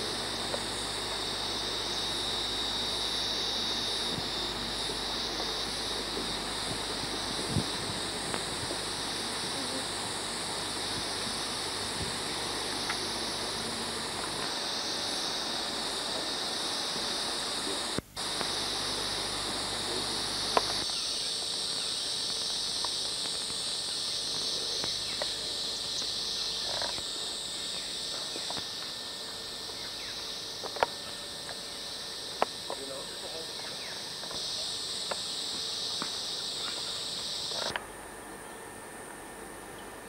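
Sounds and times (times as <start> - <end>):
high-pitched insect chorus: 0.0 - 40.0.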